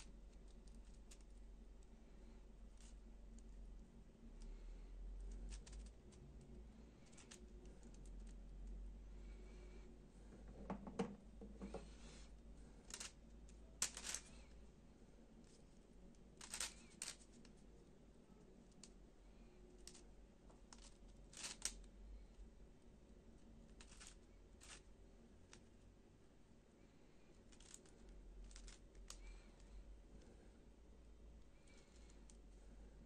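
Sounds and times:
plastic puzzle pieces clicking: 0:12.9 - 0:13.2, 0:13.8 - 0:14.5, 0:16.4 - 0:17.5, 0:20.7 - 0:21.9, 0:27.5 - 0:29.4.

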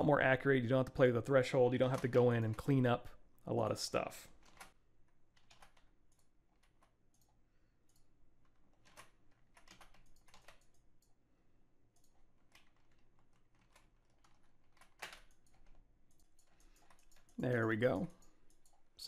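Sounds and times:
computer keyboard keystrokes: 0:04.4 - 0:08.1, 0:08.7 - 0:11.1, 0:12.0 - 0:18.8.

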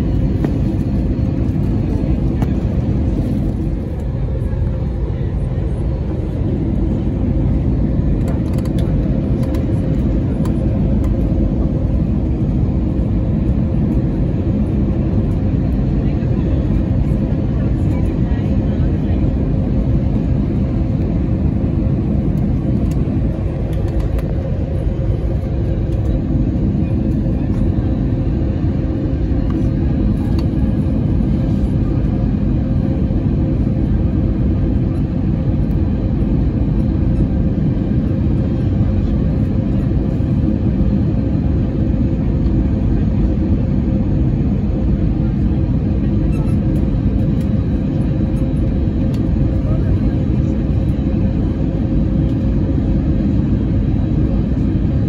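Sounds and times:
low hum: 0:00.0 - 0:42.0
airliner engine rumble: 0:00.0 - 0:55.0.

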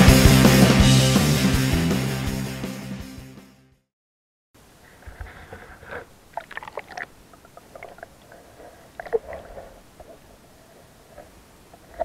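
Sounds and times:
water sloshing and gurgling: 0:04.8 - 0:12.0.

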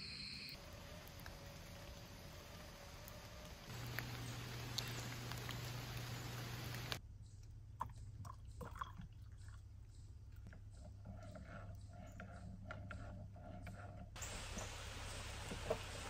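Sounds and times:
rain pattering on a puddle: 0:00.6 - 0:07.0.

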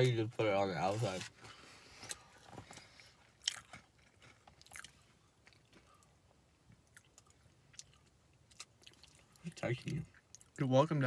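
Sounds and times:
faint chewing of cookie: 0:01.9 - 0:10.6.

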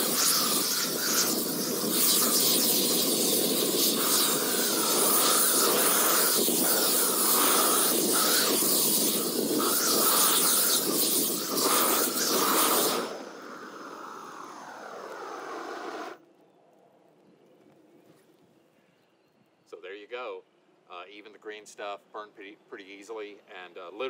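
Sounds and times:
propane torch roaring hiss: 0:00.0 - 0:16.2.

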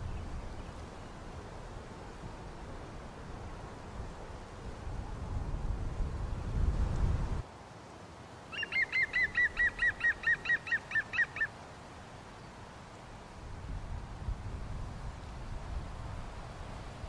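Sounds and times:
wind rumble on microphone: 0:00.0 - 0:07.4, 0:13.2 - 0:17.0
bird calling rapid notes: 0:08.5 - 0:11.5.

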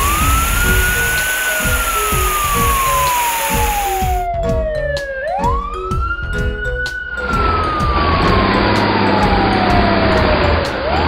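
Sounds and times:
truck engine rumble and hiss: 0:00.0 - 0:04.2
fire truck siren wailing: 0:00.0 - 0:11.0.

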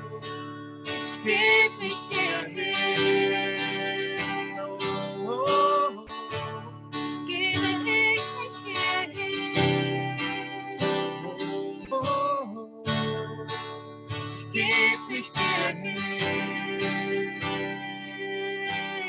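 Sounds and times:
acoustic guitar: 0:00.0 - 0:19.0
woman and man singing: 0:01.0 - 0:06.6, 0:07.2 - 0:13.0, 0:14.3 - 0:19.0.

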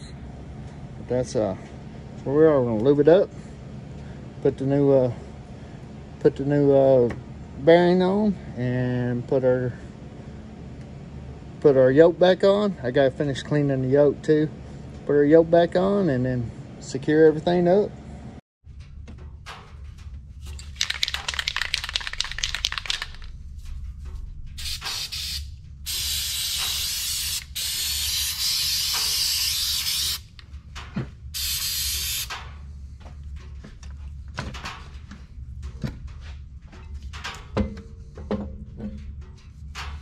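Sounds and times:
steady low hum: 0:00.0 - 0:40.0
handling clicks and knocks: 0:19.0 - 0:23.3
spray hissing: 0:24.6 - 0:30.4, 0:31.4 - 0:32.3.

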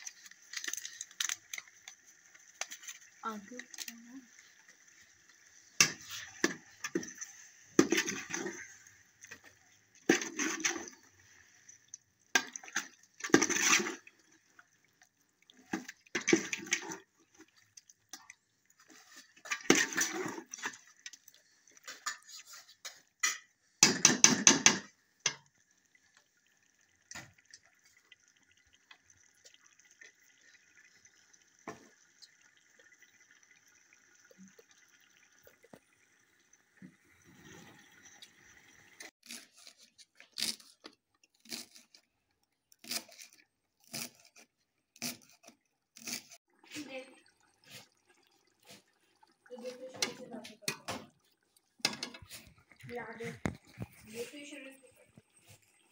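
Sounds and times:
ladle scraping sizzling pot: 0:00.0 - 0:11.4, 0:12.3 - 0:14.1, 0:18.8 - 0:25.4, 0:49.6 - 0:54.8
faint steady sizzle: 0:00.0 - 0:23.9, 0:24.9 - 0:55.9.

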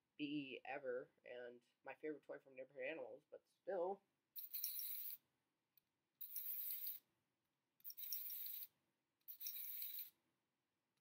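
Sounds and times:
clockwork toy whirring and rattling: 0:04.4 - 0:05.2, 0:06.2 - 0:07.0, 0:07.8 - 0:08.7, 0:09.3 - 0:10.1.

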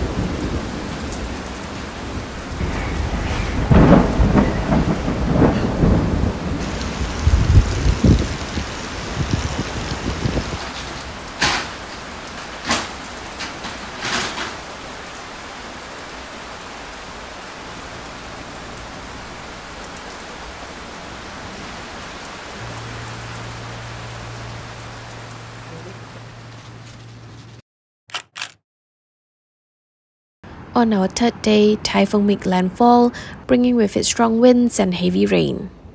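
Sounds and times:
heavy rain falling: 0:00.0 - 0:27.6.

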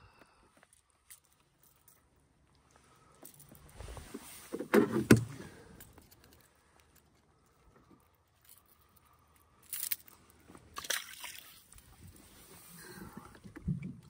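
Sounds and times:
rain jacket and gear rustling: 0:03.3 - 0:06.4.

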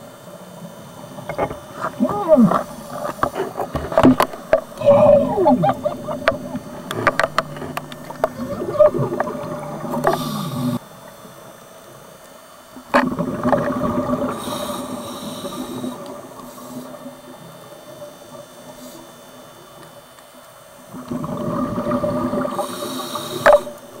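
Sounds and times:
diver exhaling bubbles underwater: 0:01.3 - 0:10.8, 0:20.9 - 0:23.9
regulator breathing in: 0:09.9 - 0:10.8, 0:22.5 - 0:23.9.

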